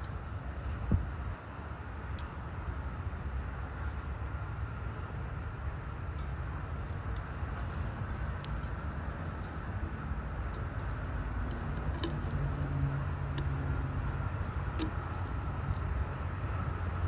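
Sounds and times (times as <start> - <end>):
engine rumble: 0.0 - 17.0.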